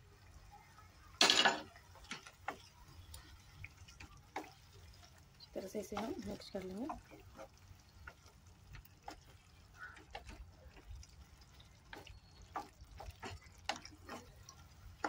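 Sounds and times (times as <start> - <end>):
wet stirring of gravy: 1.7 - 15.0
spatula scraping pan: 11.9 - 15.0.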